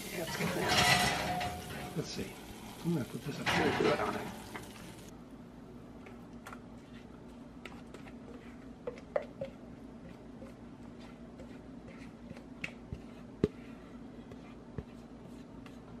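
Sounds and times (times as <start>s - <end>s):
spatula scraping mixing bowl: 0.1s - 2.0s, 6.5s - 16.0s.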